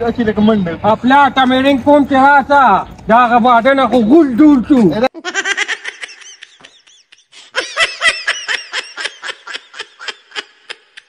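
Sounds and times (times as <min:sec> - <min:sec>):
person laughing in high bursts: 0:05.2 - 0:11.0.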